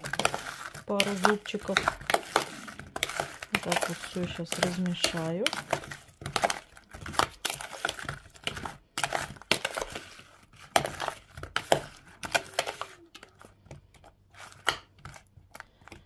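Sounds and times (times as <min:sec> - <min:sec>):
metal spoon scraping plastic bowl: 0:00.0 - 0:15.3.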